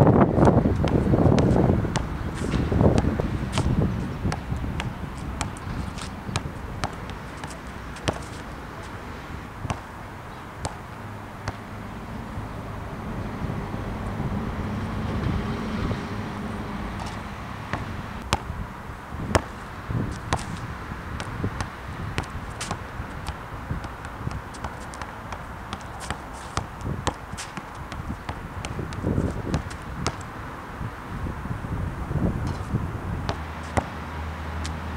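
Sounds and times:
wind on microphone: 0.0 - 9.9, 12.3 - 24.7, 26.6 - 33.5
basketball bouncing on asphalt: 0.0 - 10.0, 10.6 - 11.7, 17.0 - 18.6, 19.2 - 30.4, 33.3 - 34.0.

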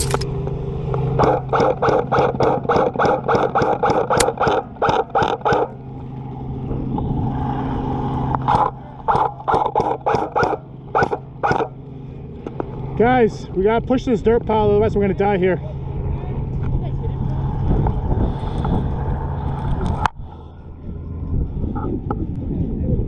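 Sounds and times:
steady low hum: 0.0 - 23.0
airsoft gunfire: 1.2 - 5.7, 8.5 - 11.7.

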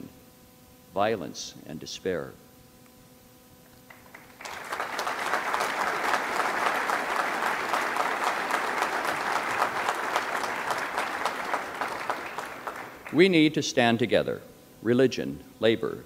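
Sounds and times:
audience applauding: 3.9 - 13.4.

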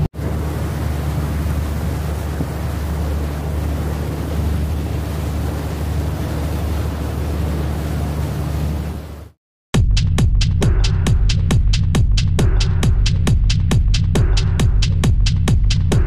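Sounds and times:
wind buffeting microphone: 0.0 - 9.2
boat engine humming: 0.0 - 9.4, 10.4 - 16.0
water rushing past hull: 0.0 - 9.4.

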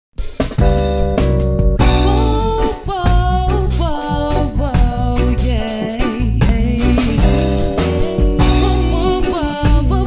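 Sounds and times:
rock band playing: 0.1 - 10.0
drum hits: 0.2 - 10.0.

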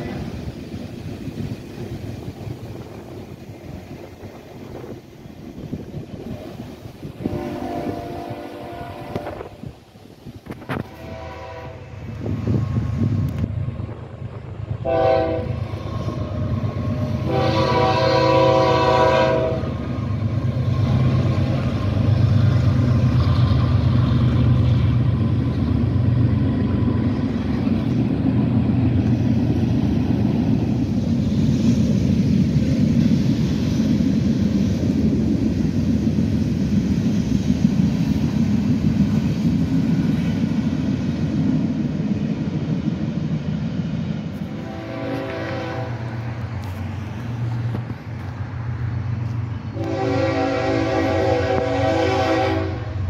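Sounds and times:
train horn blast: 7.2 - 9.7, 10.6 - 12.9, 14.8 - 19.8, 44.4 - 46.8, 49.7 - 53.0.

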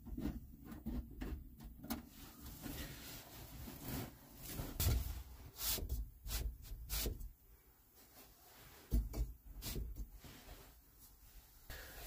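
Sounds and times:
rustling: 2.1 - 5.8
soft thumps and knocks: 8.8 - 10.2.

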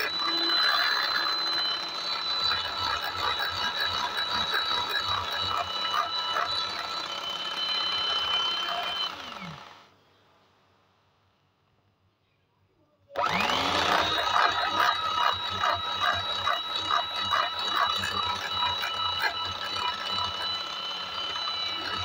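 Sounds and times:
electric hand mixer whine: 0.0 - 9.9, 13.2 - 22.0.

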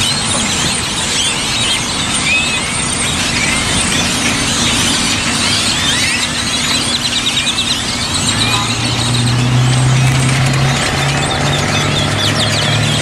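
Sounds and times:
flock of birds calling: 0.0 - 13.0
vehicle engine humming: 0.0 - 13.0.

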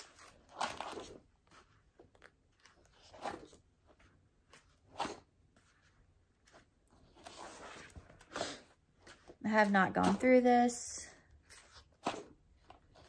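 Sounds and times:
paper pages rustling: 0.0 - 8.4.

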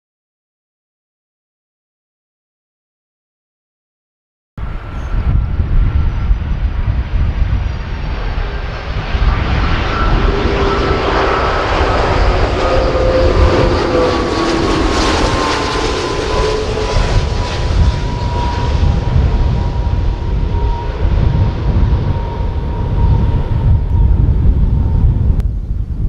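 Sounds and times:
jet airliner flying past: 4.6 - 26.0
jet engine whine falling in pitch: 4.6 - 26.0.

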